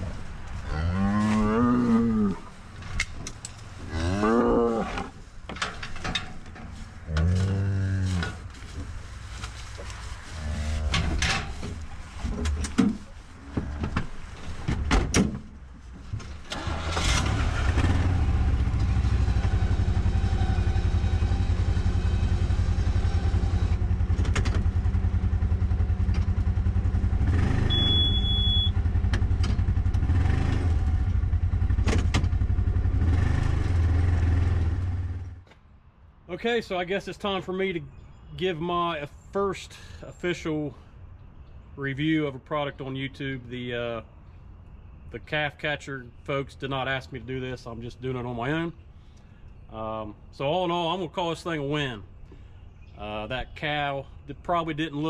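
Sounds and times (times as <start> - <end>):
cow mooing: 0.6 - 2.5, 3.9 - 5.1, 7.1 - 8.4
utility vehicle engine: 16.1 - 35.4.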